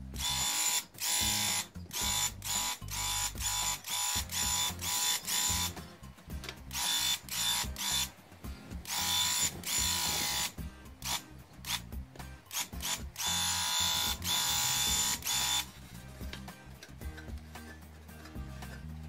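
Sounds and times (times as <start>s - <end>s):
background music: 0.0s - 19.0s
paint sprayer buzzing: 0.2s - 5.8s, 6.7s - 8.2s, 8.8s - 11.9s, 12.5s - 15.8s.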